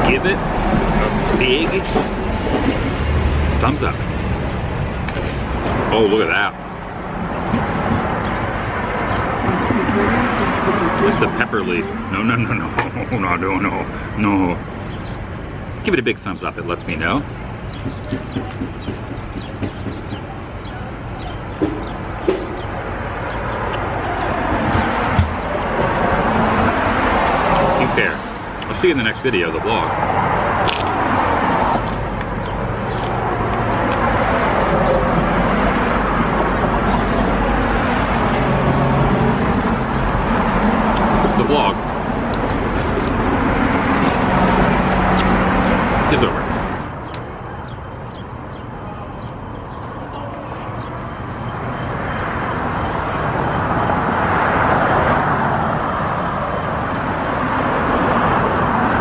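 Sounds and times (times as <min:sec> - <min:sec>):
passing vehicles: 0:00.0 - 0:59.0.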